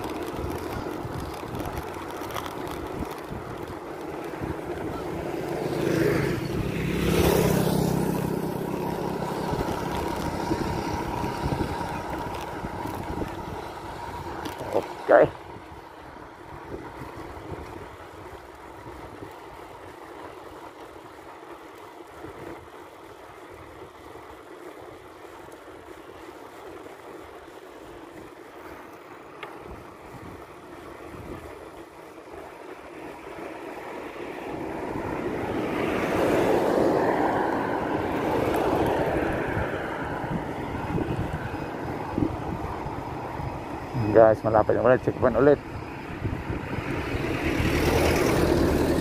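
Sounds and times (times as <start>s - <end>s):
wind buffeting microphone: 0.0s - 20.1s, 29.6s - 32.5s, 34.5s - 49.0s
bicycle road noise: 0.0s - 49.0s.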